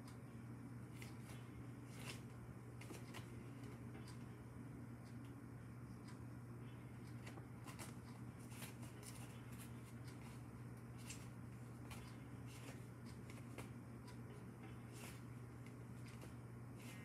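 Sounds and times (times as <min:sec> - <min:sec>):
steady low hum: 0:00.0 - 0:17.0
faint handling rustles and clicks: 0:00.9 - 0:04.3, 0:07.0 - 0:17.0.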